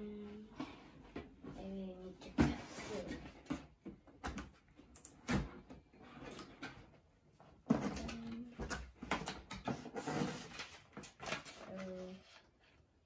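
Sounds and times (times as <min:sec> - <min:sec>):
knocks and clatter of objects: 0:00.6 - 0:07.0, 0:07.6 - 0:11.6.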